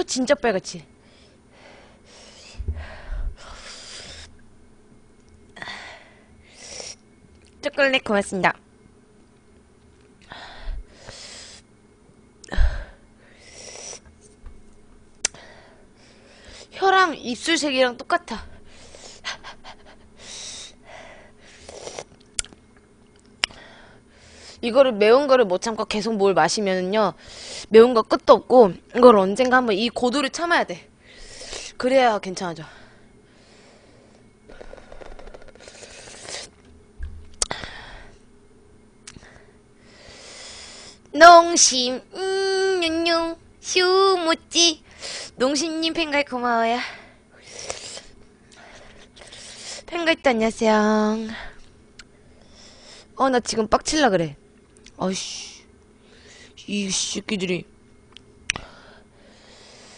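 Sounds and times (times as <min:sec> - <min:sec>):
breathing: 0:01.0 - 0:04.3, 0:05.6 - 0:06.6, 0:10.2 - 0:11.6, 0:15.4 - 0:16.7, 0:20.2 - 0:21.7, 0:23.5 - 0:24.6, 0:31.0 - 0:31.8, 0:32.6 - 0:36.0, 0:37.5 - 0:38.2, 0:39.2 - 0:41.0, 0:46.8 - 0:49.9, 0:51.3 - 0:53.1, 0:55.5 - 0:56.6, 0:58.6 - 0:59.9
woman breathing hard: 0:01.0 - 0:04.4, 0:10.2 - 0:11.7, 0:37.4 - 0:38.2.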